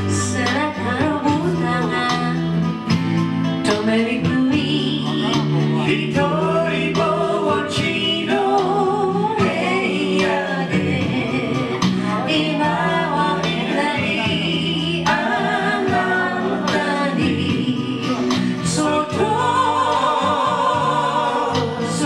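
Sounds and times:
acoustic and electric guitar: 0:00.0 - 0:22.0
person singing: 0:03.6 - 0:22.0.

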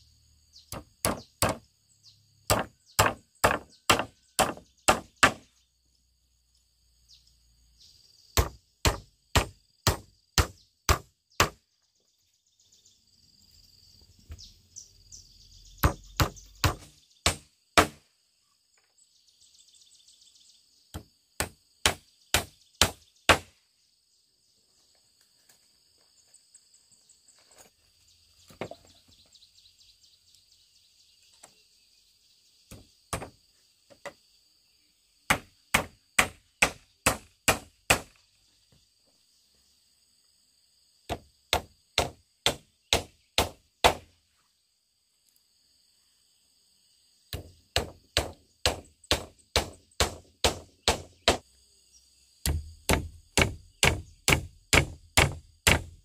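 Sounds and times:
hammer striking wooden planks: 0:00.7 - 0:01.6, 0:02.5 - 0:05.5, 0:08.4 - 0:11.6, 0:15.8 - 0:18.0, 0:20.9 - 0:23.5, 0:32.7 - 0:33.4, 0:35.3 - 0:38.2, 0:41.1 - 0:44.1, 0:47.3 - 0:51.4, 0:52.4 - 0:56.0.

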